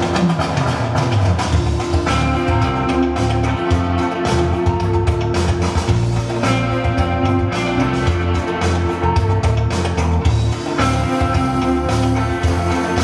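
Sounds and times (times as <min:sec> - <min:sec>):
rock music: 0:00.0 - 0:13.0.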